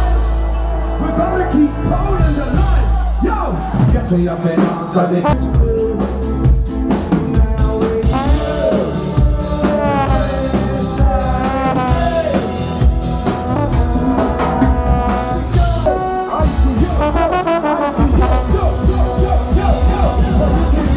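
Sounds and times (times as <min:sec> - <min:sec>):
drum kit beat: 0:00.0 - 0:20.9
live ska band playing: 0:00.0 - 0:20.9
person singing: 0:04.5 - 0:20.9
brass: 0:05.2 - 0:20.9.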